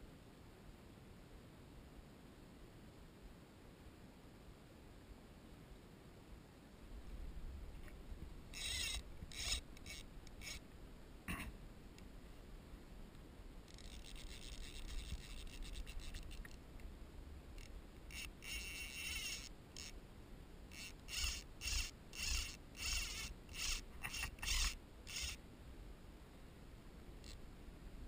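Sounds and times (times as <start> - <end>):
low wind: 0.0 - 28.0
fishing reel ratchet clicking: 8.6 - 10.6, 13.7 - 16.6, 17.6 - 20.0, 20.7 - 25.4.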